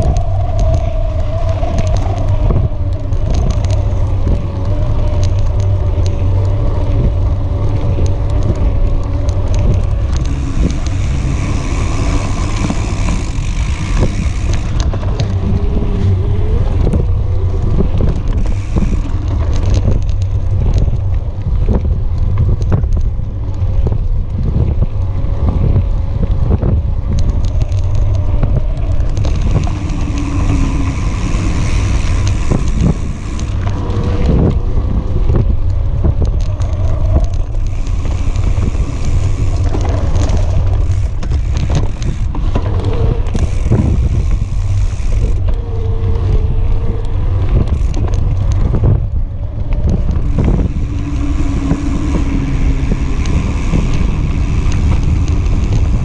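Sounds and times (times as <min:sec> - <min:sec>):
tyre rumbling on dirt: 0:00.0 - 0:56.0
wind buffeting microphone: 0:00.0 - 0:56.0
bike knocks and rattles: 0:16.8 - 0:45.8.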